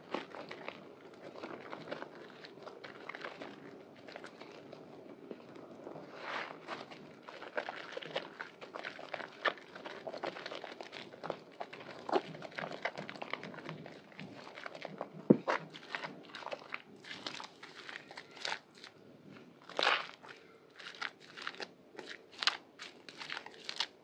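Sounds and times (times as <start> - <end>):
hands squelching soap lather: 0.0 - 24.0.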